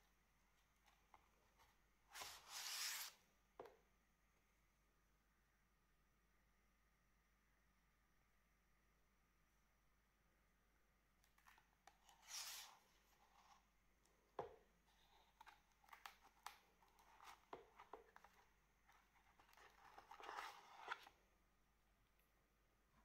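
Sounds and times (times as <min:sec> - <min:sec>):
cardboard pages rustling and sliding: 0:02.1 - 0:03.2, 0:11.4 - 0:13.6, 0:15.3 - 0:21.2.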